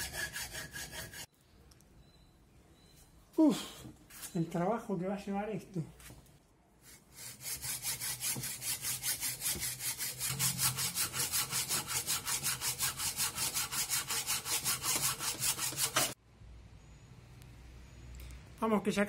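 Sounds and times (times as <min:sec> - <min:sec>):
hacksaw cutting metal: 0:07.2 - 0:16.2.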